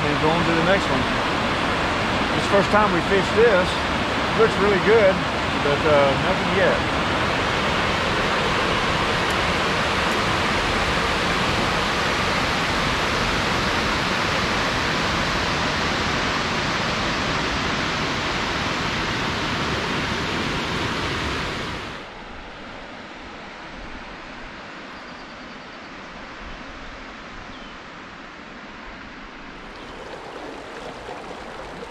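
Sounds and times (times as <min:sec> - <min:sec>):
river water rushing: 0:00.0 - 0:13.9, 0:29.6 - 0:31.9.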